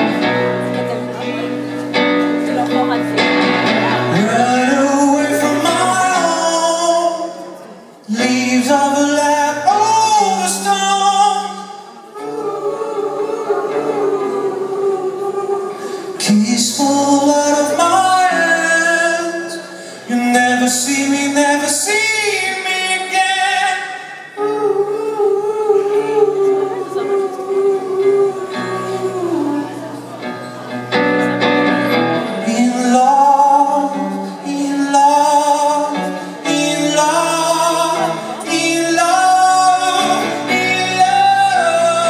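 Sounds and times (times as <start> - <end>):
acoustic guitar: 0.0 - 42.0
man singing into a microphone: 3.9 - 30.2, 31.5 - 42.0.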